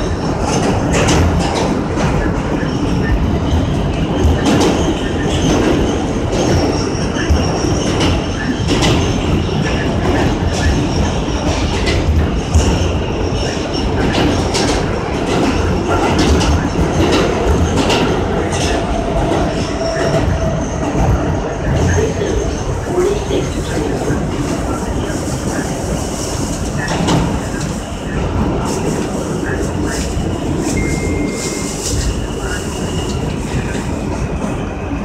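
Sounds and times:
steel wheels rumbling on rail: 0.0s - 35.0s
high-pitched wheel ringing: 30.8s - 32.0s.

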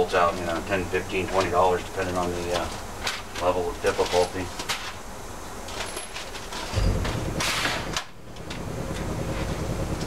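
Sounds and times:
metal tools clinking: 5.7s - 6.9s.

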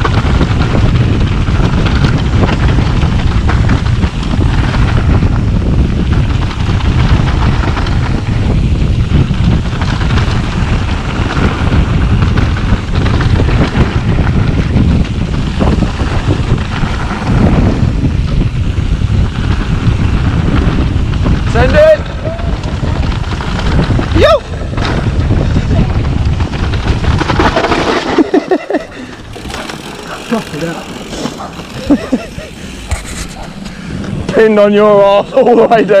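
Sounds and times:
bike knocks and rattles: 0.0s - 35.5s
bike tyres rolling on dirt trail: 0.0s - 36.0s
wind buffeting microphone: 0.0s - 36.0s.

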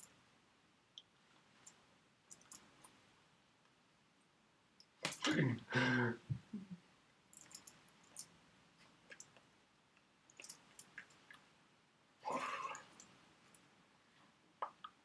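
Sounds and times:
faint clicks and smacks: 0.9s - 5.4s, 7.3s - 11.5s, 14.5s - 15.0s.

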